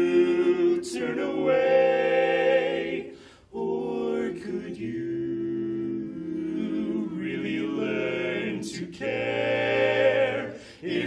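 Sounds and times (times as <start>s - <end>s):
men singing close harmony: 0.0s - 11.0s.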